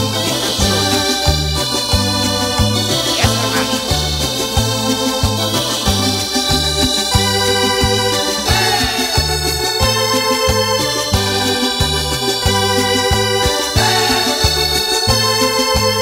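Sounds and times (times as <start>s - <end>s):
organ chords: 0.0s - 16.0s
repeating bass line: 0.5s - 4.5s.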